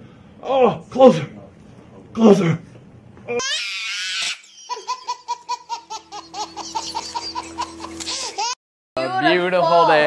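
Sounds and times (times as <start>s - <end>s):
baby high squeal: 3.4s - 4.5s
baby laughing: 3.4s - 8.6s.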